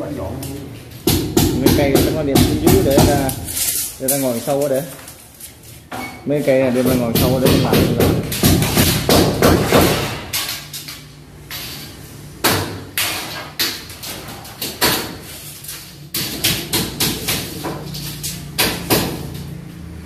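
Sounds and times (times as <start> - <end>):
hammer strikes: 1.0 - 3.6, 6.8 - 11.6, 12.4 - 15.2, 16.1 - 19.5.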